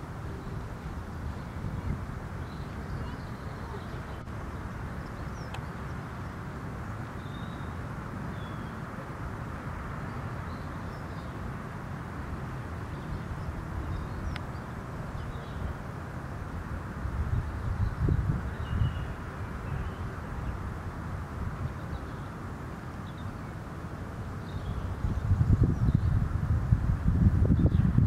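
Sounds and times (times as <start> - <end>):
wind rumble on microphone: 0.0 - 28.0
faint bird chirps: 1.2 - 6.4, 7.2 - 8.9.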